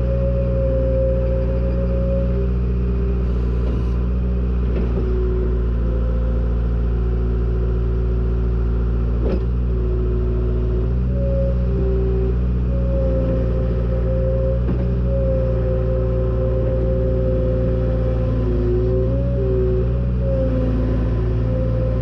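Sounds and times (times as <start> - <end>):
diesel engine running under load: 0.0 - 22.0.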